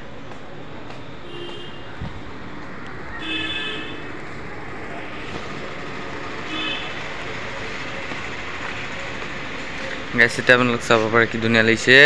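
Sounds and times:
town traffic hum: 0.0 - 12.0
vehicle horn toots: 1.2 - 1.9, 3.2 - 4.1, 6.4 - 7.1.

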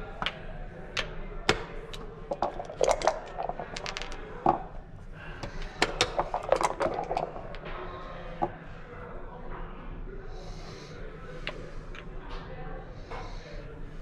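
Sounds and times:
checkers clacking on board: 1.0 - 4.6, 5.5 - 7.6
dice rolling on board: 1.0 - 4.7, 5.4 - 7.6.

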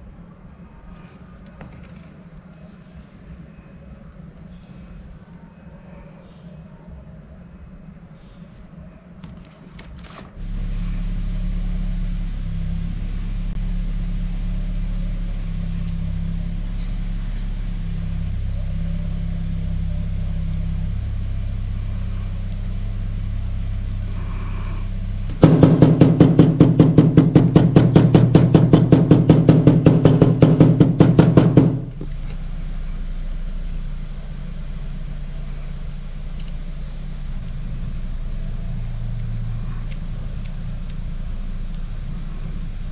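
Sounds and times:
motor humming: 10.4 - 42.9.

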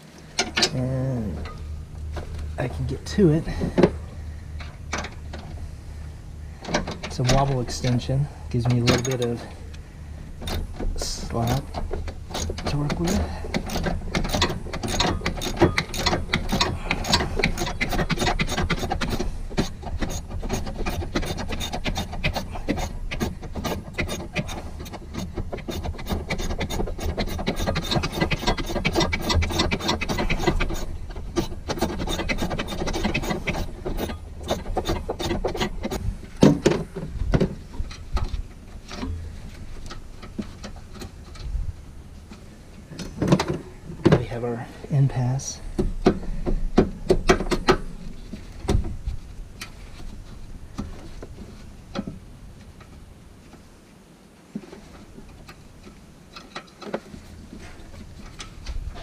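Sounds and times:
hand ratchet clicking: 10.4 - 36.0.

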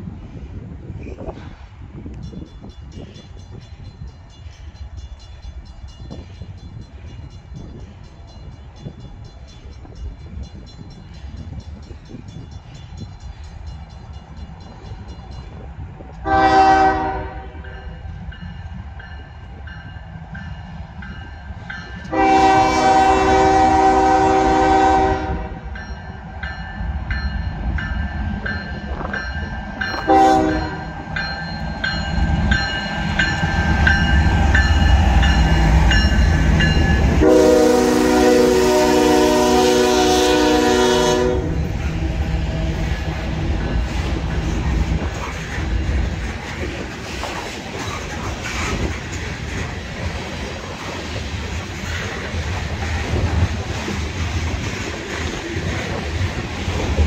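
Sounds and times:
locomotive horn blasts: 16.2 - 17.8, 22.1 - 25.7, 30.0 - 30.9, 37.1 - 43.7.

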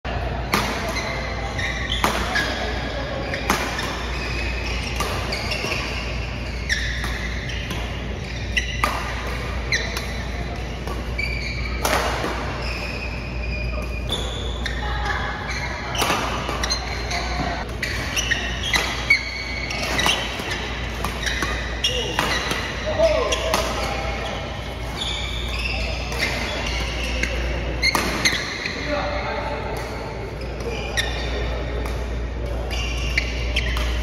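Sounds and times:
shoe squeaks on court: 0.9 - 29.1, 30.4 - 31.8, 32.5 - 34.0
rackets striking shuttlecock: 3.4 - 11.2.

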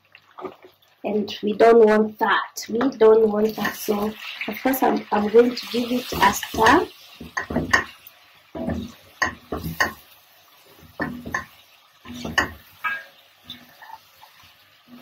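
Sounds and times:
wooden spoon stirring stew in pot: 5.9 - 10.1, 10.7 - 15.0.

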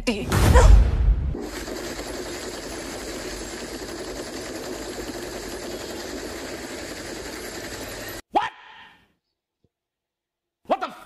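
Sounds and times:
machine gun rapid fire: 1.4 - 8.2.

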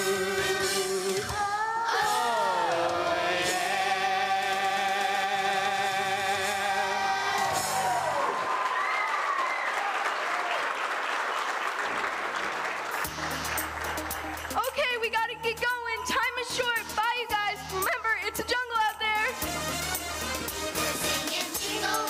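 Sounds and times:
children's choir singing: 0.0 - 8.2, 20.7 - 22.0
musical accompaniment: 0.0 - 8.4, 12.8 - 22.0
audience applauding: 4.2 - 14.9.

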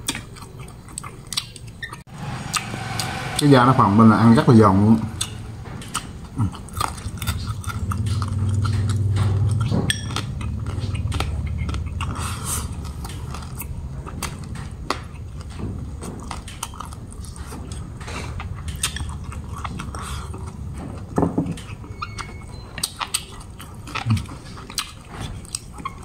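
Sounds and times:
low steady hum: 2.1 - 13.4.

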